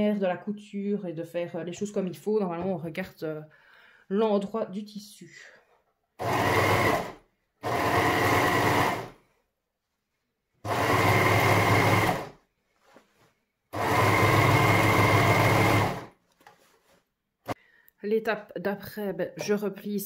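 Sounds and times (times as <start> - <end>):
overlocker stitching: 6.2 - 9.2, 10.6 - 12.4, 13.7 - 16.6.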